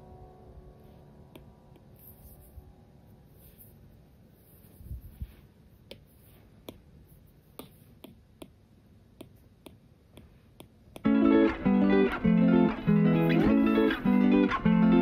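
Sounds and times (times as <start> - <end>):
plucked acoustic guitar music: 11.0 - 15.0.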